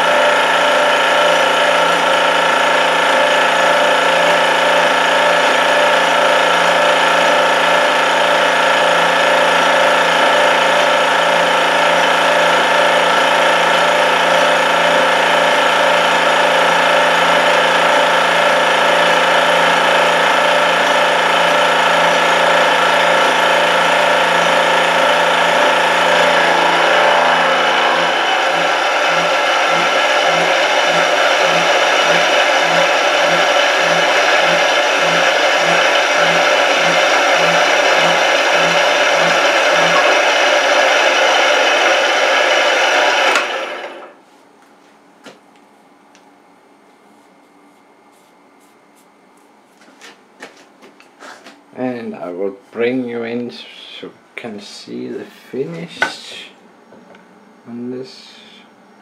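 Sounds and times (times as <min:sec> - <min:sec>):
milling machine cutting steel: 0:00.0 - 0:44.0
low pulsing: 0:19.0 - 0:40.6.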